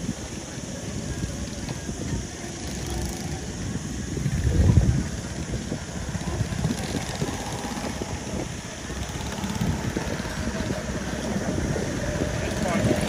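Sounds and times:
go-kart engines droning: 0.0 - 13.0.

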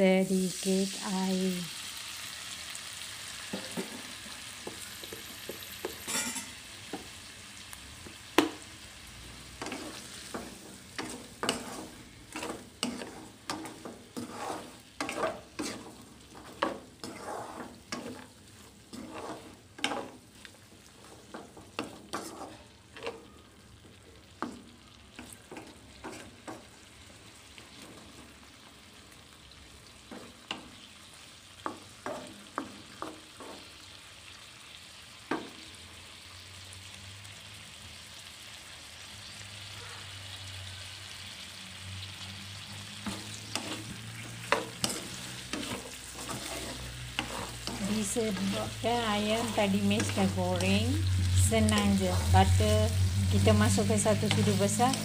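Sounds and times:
frying sizzle: 0.0 - 55.0
spatula scraping a wok: 3.4 - 7.2, 8.1 - 23.5, 24.3 - 28.6, 30.0 - 30.9, 31.6 - 33.9, 42.6 - 55.0.

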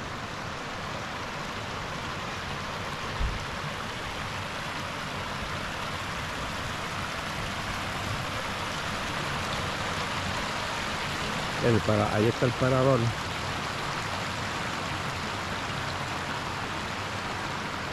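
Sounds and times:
river water rushing and splashing: 0.0 - 17.9.

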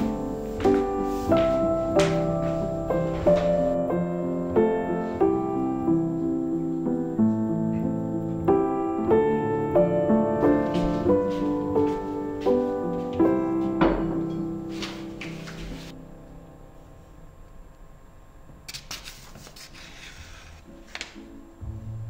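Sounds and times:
piano music: 0.0 - 17.7, 20.6 - 22.0.

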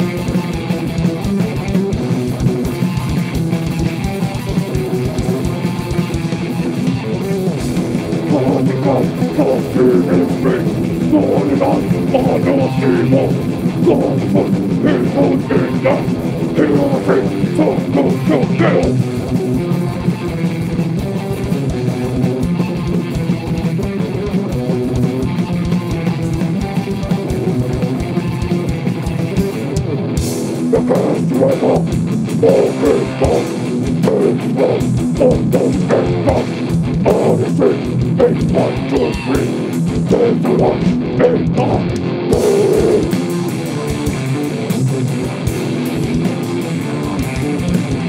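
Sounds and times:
drum kit: 0.0 - 48.0
electric guitar riffing: 0.0 - 48.0.

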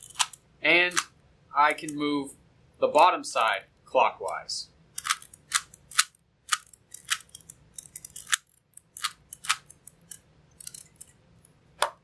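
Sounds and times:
puzzle cube clicking: 0.0 - 1.1, 4.9 - 11.1.

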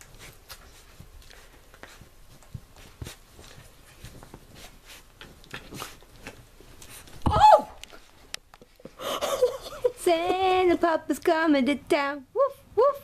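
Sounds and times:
puppy rustling on blanket: 0.0 - 7.2.

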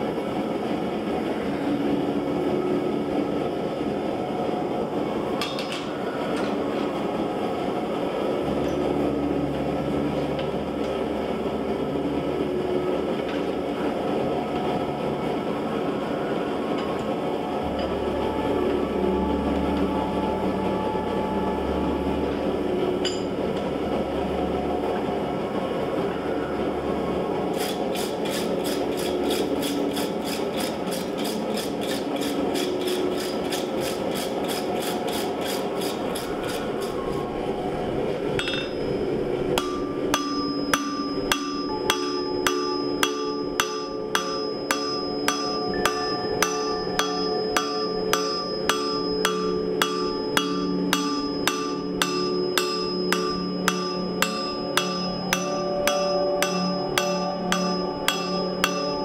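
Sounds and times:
hammer striking steel on anvil: 23.0 - 23.3, 38.4 - 38.8, 39.6 - 59.0
anvil ringing: 38.4 - 38.9, 39.6 - 59.0.

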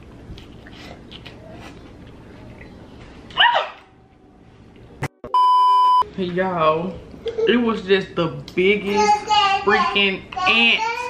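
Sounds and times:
electronic bleep tone: 5.2 - 6.0.

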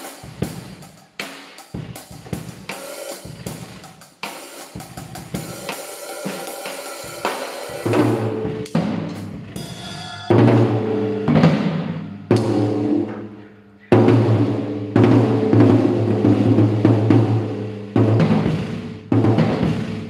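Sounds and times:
drum kit played with sticks: 0.0 - 20.0
cymbal wash: 4.8 - 19.0
loud ringing tom strokes: 6.2 - 19.8.

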